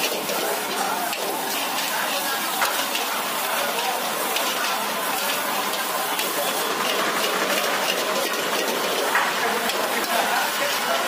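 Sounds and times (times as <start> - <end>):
rice sizzling in a wok: 0.0 - 11.0
metal spatulas clicking on wok: 2.5 - 10.8.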